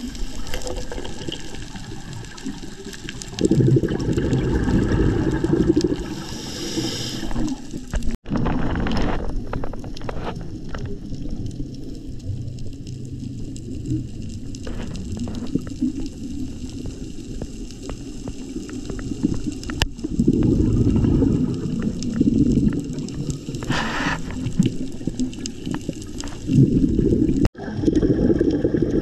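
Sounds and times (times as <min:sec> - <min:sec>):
scuba regulator bubbling exhalation: 0:00.0 - 0:08.1, 0:18.8 - 0:29.0
watery background: 0:00.0 - 0:29.0
high hiss: 0:06.1 - 0:07.6.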